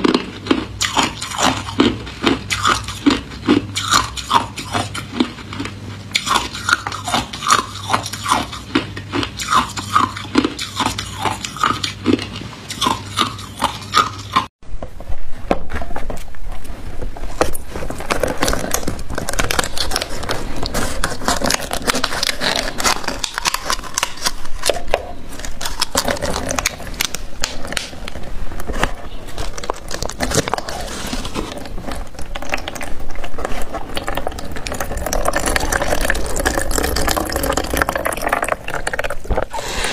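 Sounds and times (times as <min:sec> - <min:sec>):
ice cubes crunched by teeth: 0:00.0 - 0:14.5, 0:18.0 - 0:39.8
plastic peeled off ice: 0:17.4 - 0:39.9
scissors snipping plastic: 0:17.5 - 0:31.7.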